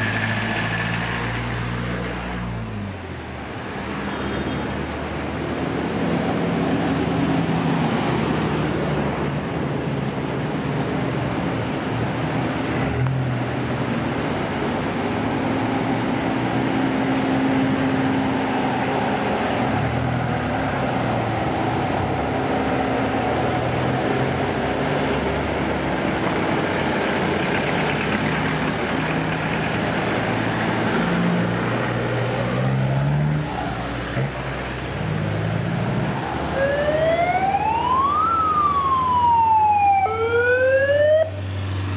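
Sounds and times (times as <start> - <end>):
tyres hissing on wet road: 0.0 - 2.5
off-road vehicle engines running: 0.0 - 41.9
siren-like loudspeaker wail: 36.1 - 41.4.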